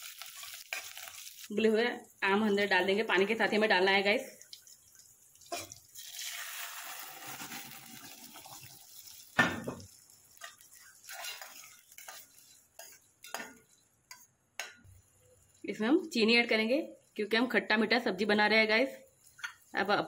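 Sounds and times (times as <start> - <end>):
mango slices hissing in hot ghee: 0.0 - 1.6, 4.3 - 14.3
steel ladle stirring in pan: 4.4 - 15.6.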